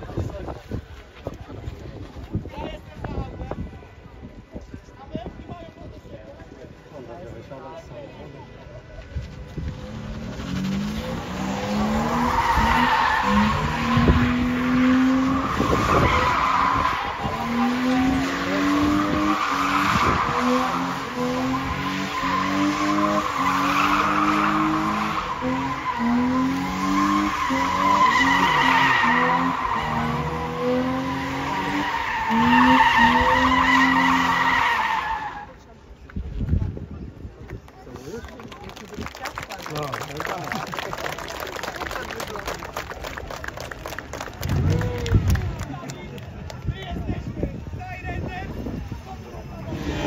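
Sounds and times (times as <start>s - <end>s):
car engine revving: 9.2s - 35.4s.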